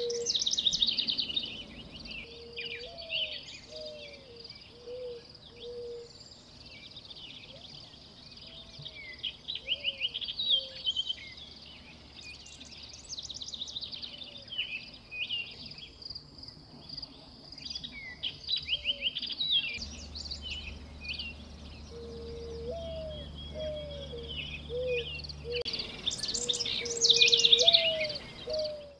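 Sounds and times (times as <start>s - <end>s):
small birds chirping: 0.0s - 28.9s
low sliding bird call: 19.8s - 28.9s.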